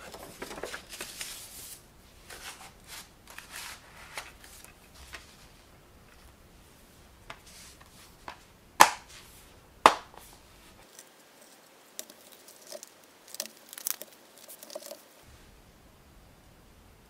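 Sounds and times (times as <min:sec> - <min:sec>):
cases rustling and ticking: 0:00.0 - 0:01.3.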